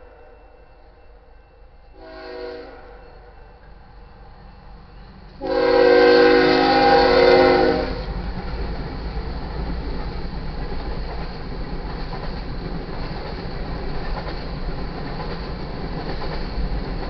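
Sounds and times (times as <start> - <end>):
locomotive air horn blasts: 1.9 - 3.4, 5.4 - 8.1.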